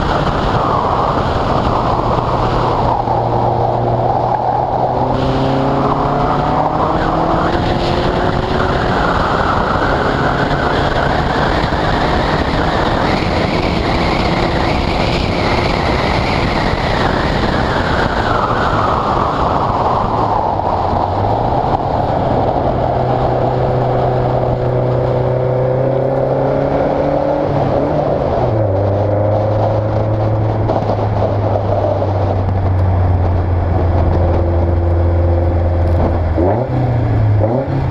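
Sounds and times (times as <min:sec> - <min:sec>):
wind and tyre spray hiss: 0:00.0 - 0:26.4.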